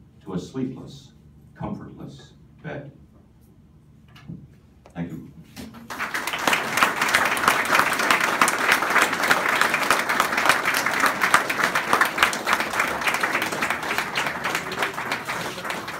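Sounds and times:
audience applauding: 5.8 - 15.9.

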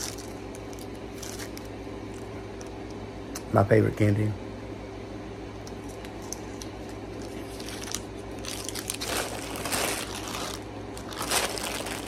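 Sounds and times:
plastic bag crinkling: 0.0 - 2.7, 6.2 - 12.0.

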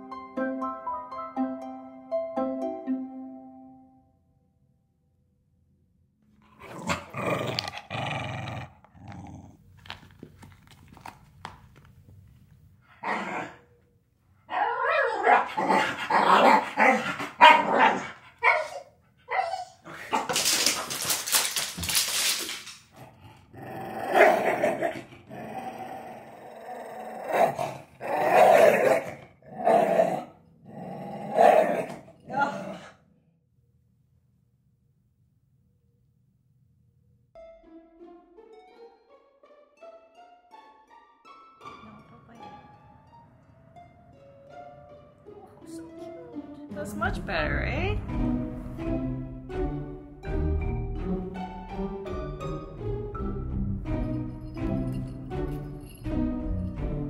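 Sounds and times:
dog growling and barking: 6.4 - 9.7, 12.9 - 13.7, 14.5 - 21.4, 22.9 - 33.1.

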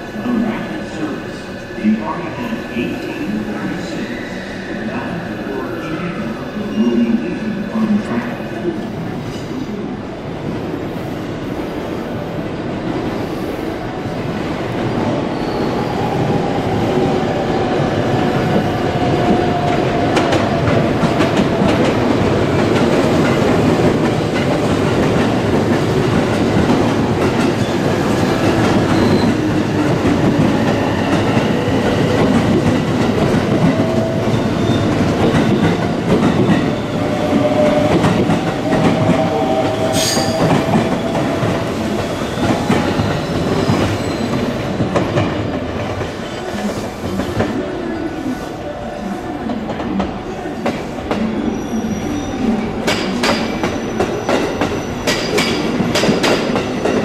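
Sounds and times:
electric train running past: 0.0 - 57.0.

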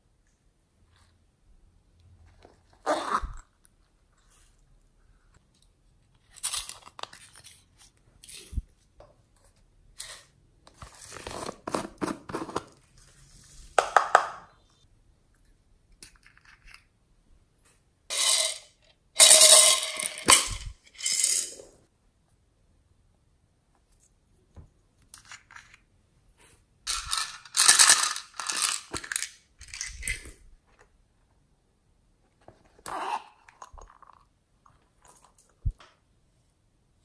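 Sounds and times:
plastic toys clicking: 26.9 - 30.3.

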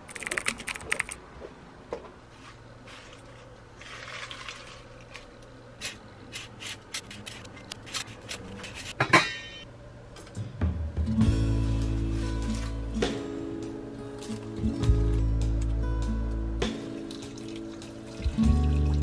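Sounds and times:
metal pot lid clanking: 9.0 - 9.6.

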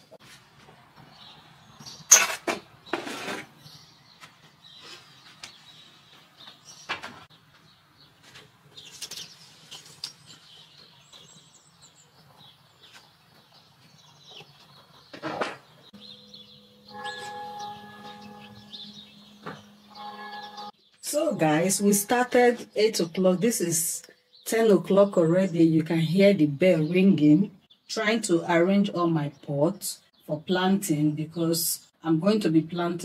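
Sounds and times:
plastic pots knocking and scraping: 2.1 - 3.6, 14.6 - 15.8
bell ringing: 16.0 - 22.4.

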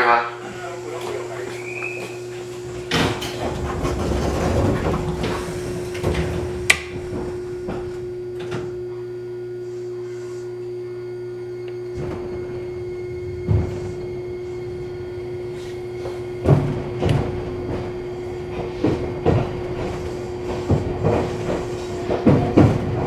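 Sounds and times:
train equipment humming: 0.0 - 23.0
noisy clattering: 2.4 - 8.7, 15.9 - 23.0.

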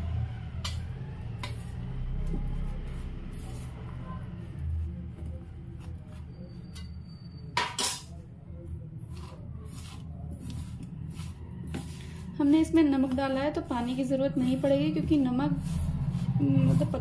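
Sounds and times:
metal bowl clink: 6.7 - 8.2
hand mixing cabbage in bowl: 9.0 - 17.0.

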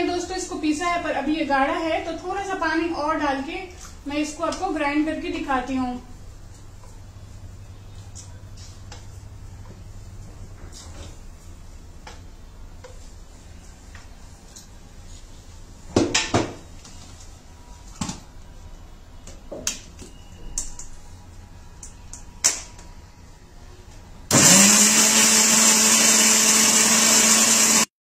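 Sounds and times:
mixer grinder motor: 24.3 - 27.9.

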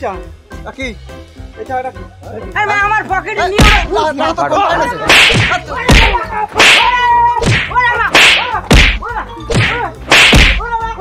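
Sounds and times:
slaps and punches: 3.6 - 3.9, 5.0 - 10.7.

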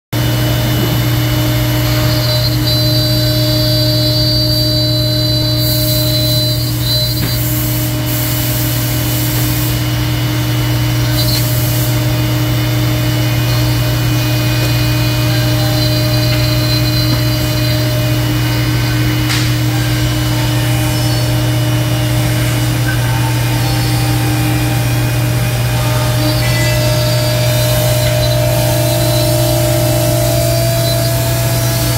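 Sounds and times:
cnc router cutting plywood: 0.2 - 31.9
strong steady low hum: 0.2 - 31.9.

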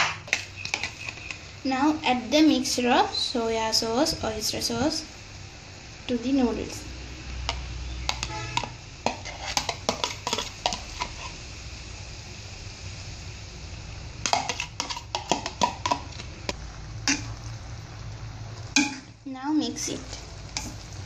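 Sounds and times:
plastic container tapping metal pan: 14.3 - 16.1.

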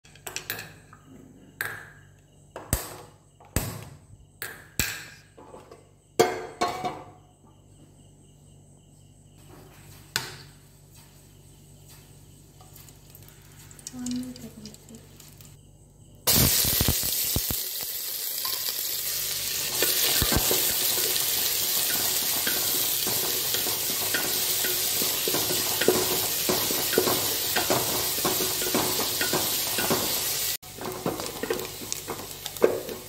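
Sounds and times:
metal cookware knocking: 6.2 - 7.1.

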